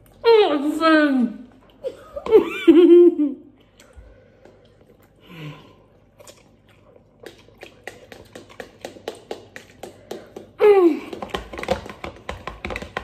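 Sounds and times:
chewing: 0:03.6 - 0:12.0
forks tapping plastic bowls: 0:08.1 - 0:13.0.

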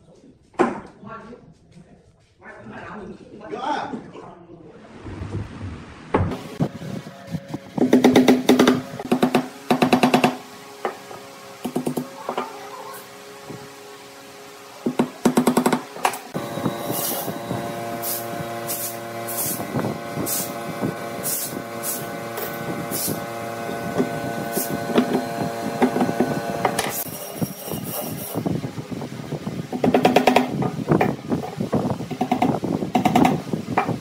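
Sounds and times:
hammer striking nails into wood: 0:07.8 - 0:10.4, 0:14.9 - 0:16.2, 0:29.8 - 0:30.5.

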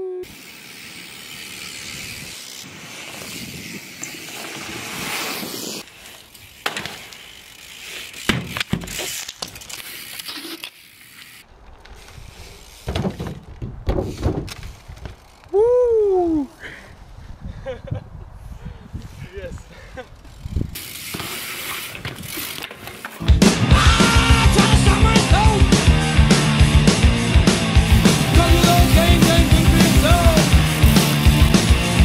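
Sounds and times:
person yelling: 0:00.0 - 0:00.3, 0:15.5 - 0:16.5, 0:23.6 - 0:26.2
bike tyres rolling hiss: 0:00.2 - 0:32.0
bike landing knocks and clatters: 0:06.6 - 0:07.2, 0:08.2 - 0:10.2, 0:12.8 - 0:15.2.

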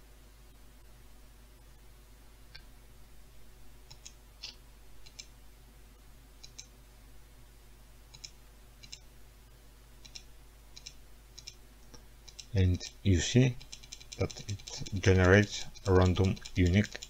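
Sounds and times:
computer mouse clicking: 0:03.9 - 0:05.3, 0:06.4 - 0:06.7, 0:08.1 - 0:09.0, 0:10.0 - 0:13.0, 0:13.6 - 0:17.0.

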